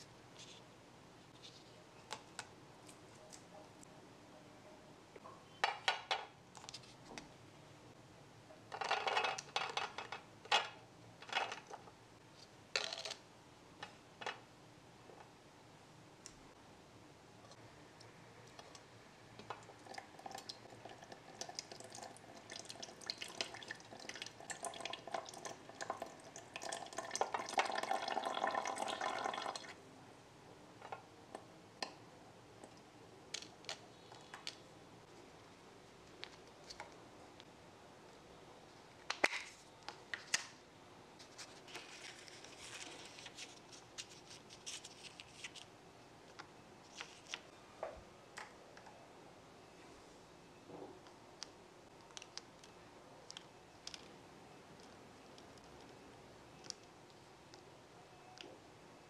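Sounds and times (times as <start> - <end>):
tap water running: 19.8 - 29.7.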